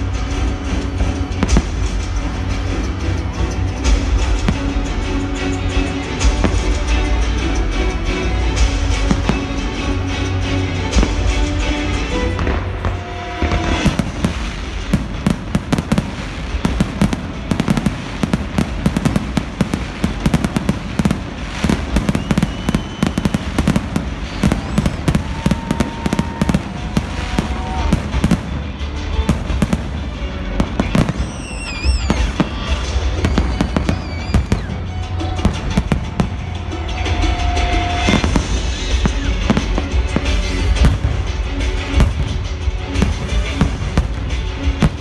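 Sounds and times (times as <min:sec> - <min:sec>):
fireworks crackles: 0:00.0 - 0:45.0
firework shell bursts: 0:10.9 - 0:45.0.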